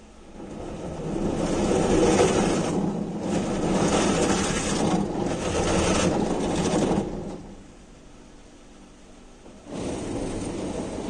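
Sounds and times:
car wash machinery hum: 0:00.0 - 0:11.0
water spraying on car: 0:00.1 - 0:07.6, 0:09.6 - 0:11.0
rotating brushes scrubbing car: 0:00.3 - 0:07.5, 0:09.7 - 0:11.0.

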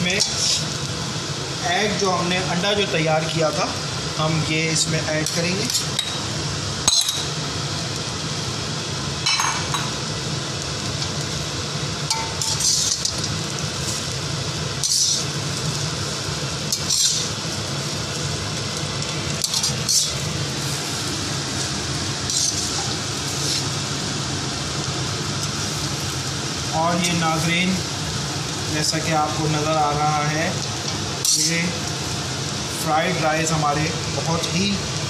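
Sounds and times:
metal spoon scraping a wok: 0:12.4 - 0:13.1, 0:14.8 - 0:15.3, 0:16.7 - 0:17.4, 0:19.4 - 0:20.9, 0:22.2 - 0:23.8, 0:31.2 - 0:31.5.

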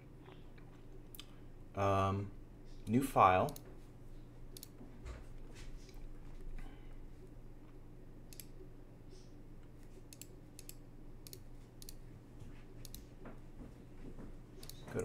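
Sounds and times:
faint low hum: 0:00.0 - 0:15.0
computer mouse clicks: 0:04.5 - 0:04.8, 0:08.3 - 0:08.6, 0:09.2 - 0:12.0, 0:12.8 - 0:13.1, 0:14.6 - 0:15.0.

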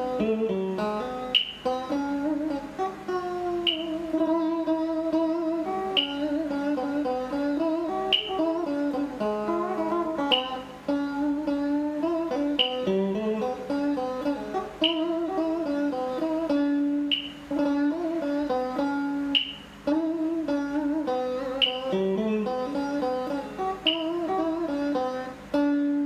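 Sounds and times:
electric guitar slow melody: 0:00.0 - 0:26.0
short sharp click: 0:12.6 - 0:12.9.

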